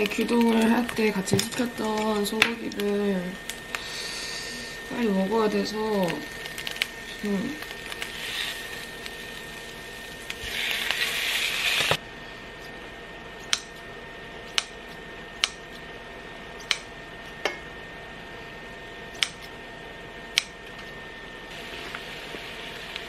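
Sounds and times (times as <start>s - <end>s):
beef sizzling in frying pan: 0.0s - 12.0s, 21.5s - 23.0s.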